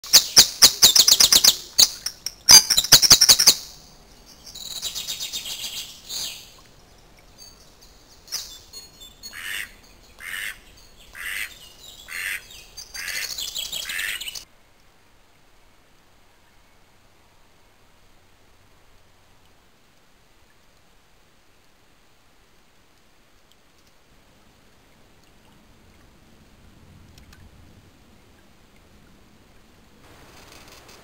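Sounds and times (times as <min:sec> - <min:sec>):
birds trilling song: 0:04.2 - 0:14.4
short lower bird calls: 0:08.4 - 0:14.4.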